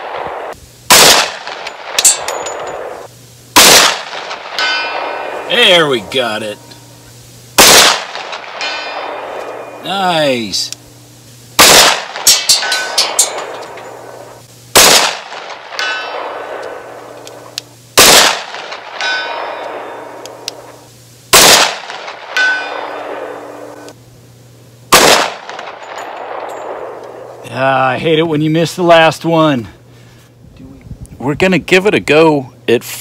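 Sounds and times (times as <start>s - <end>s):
pistol shots: 0.0s - 5.4s, 7.6s - 9.7s, 11.6s - 13.8s, 14.7s - 16.9s, 18.0s - 20.1s, 21.3s - 23.6s, 24.9s - 27.0s
steel target ringing: 1.0s - 10.7s, 11.6s - 14.2s, 14.8s - 17.0s, 18.5s - 20.2s, 21.9s - 23.9s.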